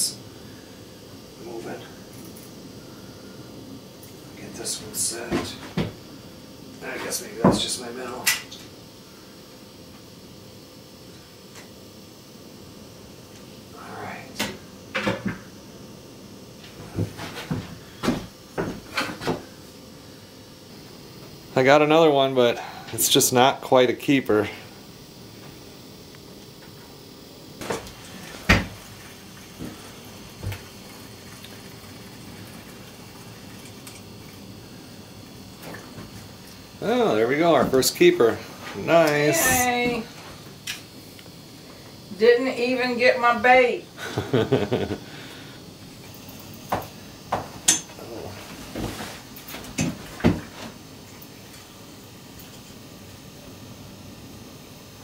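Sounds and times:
faint background hum: 0.0 - 55.0.

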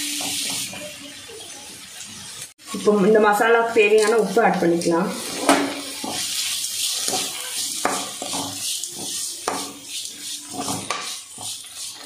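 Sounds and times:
masala sizzling: 0.0 - 12.0
metal spoon scraping pan: 5.2 - 12.0.

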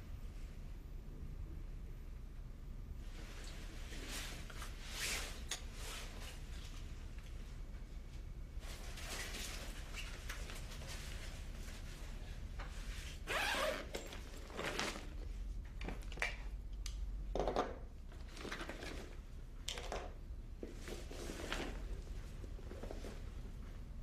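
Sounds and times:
low steady hum: 0.0 - 24.0
rustling and scraping: 8.6 - 16.0, 20.6 - 23.8.

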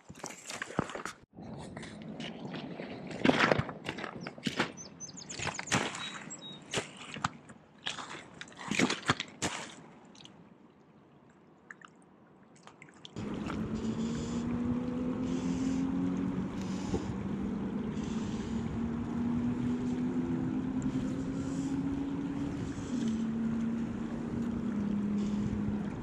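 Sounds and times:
engine-like drone: 13.2 - 26.0
river current rushing: 13.2 - 26.0.

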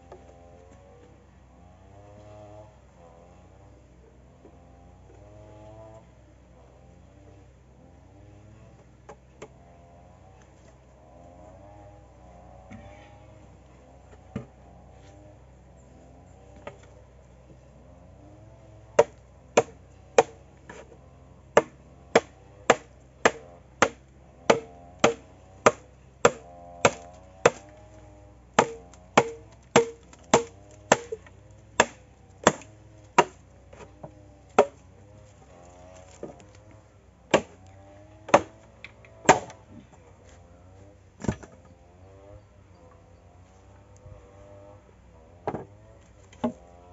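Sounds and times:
baton striking machete: 19.0 - 20.8, 21.6 - 27.7, 28.6 - 31.2, 31.8 - 33.4, 34.6 - 34.8, 37.4 - 37.6, 38.3 - 38.6, 39.2 - 39.6.

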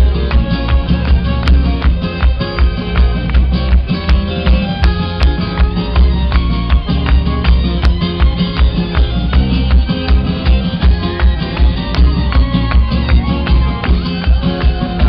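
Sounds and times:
live band playing amplified music: 0.0 - 15.0.

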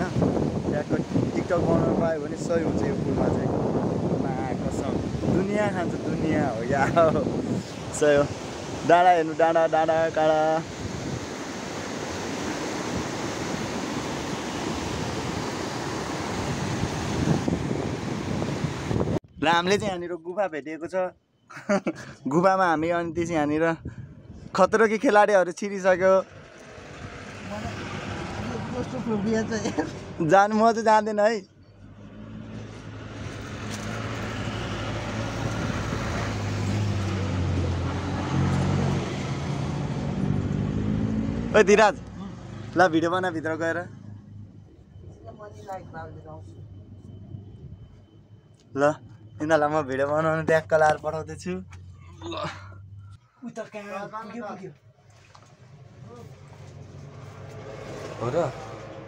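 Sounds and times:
stream rushing over rocks: 10.6 - 17.4.

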